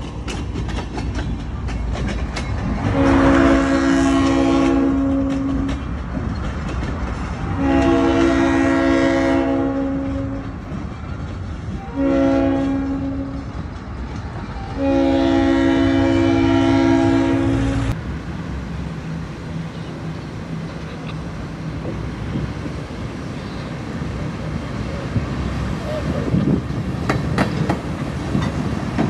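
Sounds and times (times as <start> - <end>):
train rolling rumble: 0.0 - 29.0
locomotive air horn blasts: 2.9 - 5.8, 7.5 - 10.6, 11.7 - 13.5, 14.6 - 18.0.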